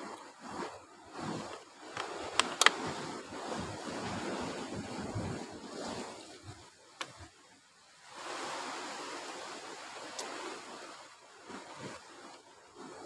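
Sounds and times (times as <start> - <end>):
sea surf washing in: 0.0 - 13.0
sharp clicks: 2.0 - 2.8.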